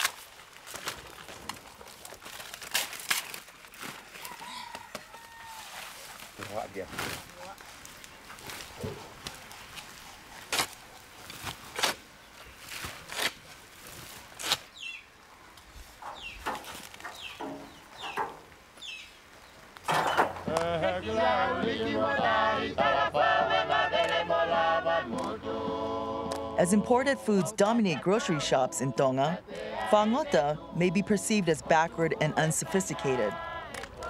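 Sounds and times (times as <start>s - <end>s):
yard work knocks and clatter: 8.2s - 9.9s, 15.5s - 19.0s, 19.6s - 20.7s
choir singing unaccompanied: 20.0s - 34.0s.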